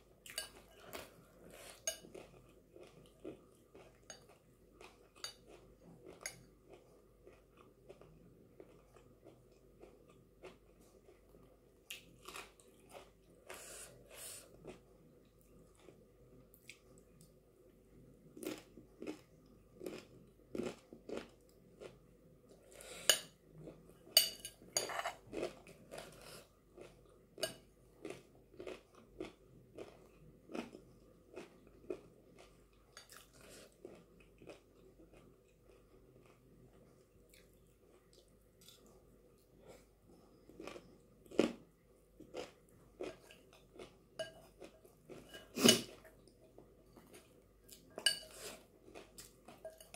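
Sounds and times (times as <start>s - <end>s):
crunching and chewing snack: 0.4s - 16.9s, 18.3s - 23.9s, 25.1s - 49.9s
metal spoon clinking on glass bowl: 24.2s - 25.1s, 48.0s - 48.4s.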